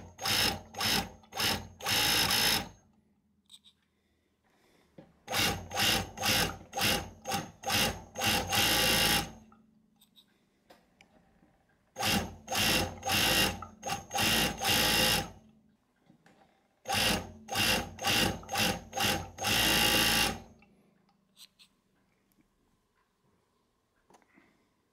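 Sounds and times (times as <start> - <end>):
overlock machine stitching: 0.0 - 2.8, 5.2 - 9.4, 12.0 - 15.4, 16.8 - 20.5.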